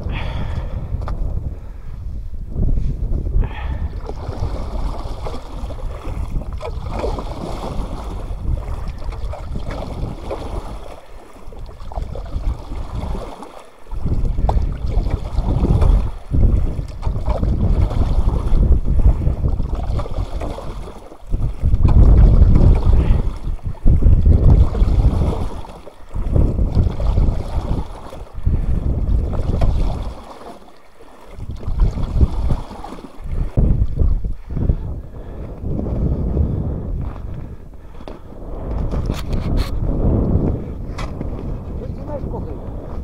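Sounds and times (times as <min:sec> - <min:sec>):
gusty wind buffeting microphone: 0:00.0 - 0:30.4, 0:31.3 - 0:43.0
water sloshing: 0:03.6 - 0:35.4.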